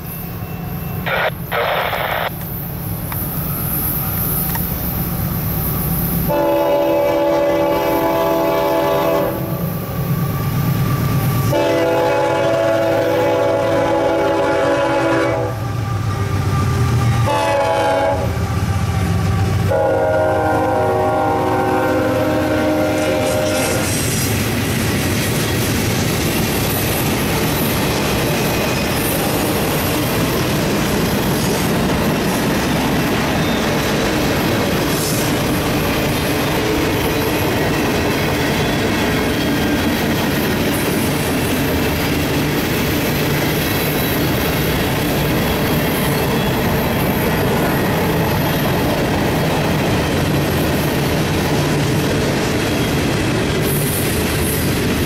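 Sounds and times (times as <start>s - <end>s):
train wheel squeal: 0.0s - 1.4s, 2.4s - 12.2s, 15.4s - 19.6s, 21.9s - 55.0s.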